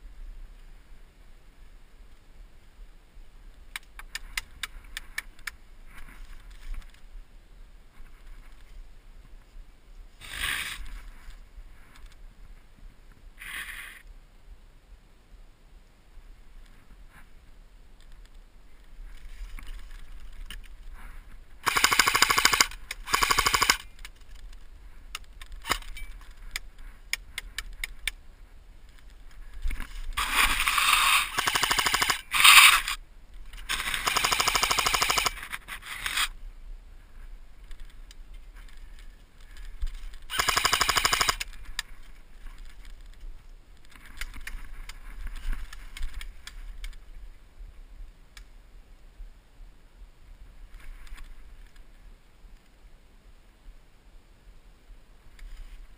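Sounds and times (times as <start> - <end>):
airsoft rifle firing bursts: 21.6 - 23.8, 30.2 - 33.0, 33.7 - 35.4, 40.3 - 41.5.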